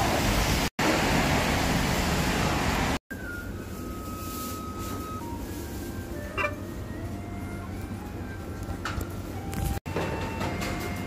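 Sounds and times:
dense street noise: 0.0s - 11.0s
held electronic tones: 3.2s - 7.6s.

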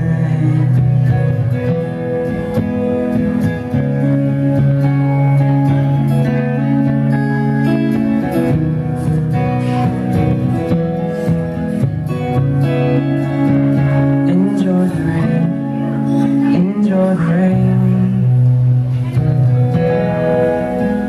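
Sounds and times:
acoustic guitar strumming: 0.0s - 21.0s.

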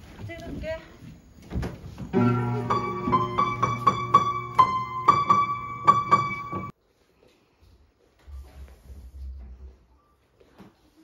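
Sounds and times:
upright piano playing: 2.1s - 6.7s.

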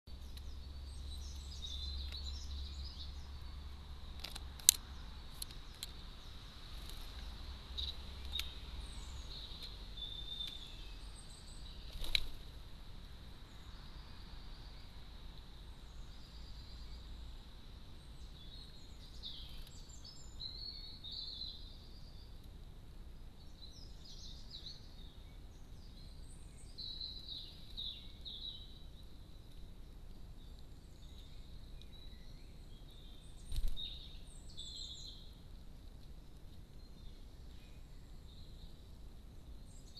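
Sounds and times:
songbirds chirping and singing: 0.1s - 39.9s
sharp clicks: 4.2s - 6.0s.

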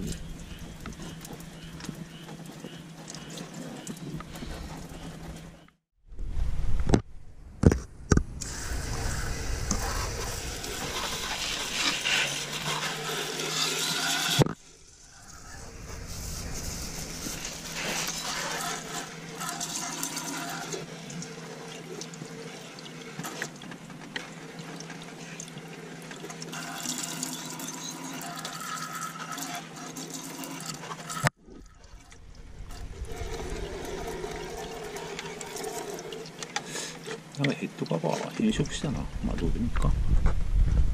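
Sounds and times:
water jet spraying on metal: 8.4s - 23.6s, 26.4s - 31.3s.

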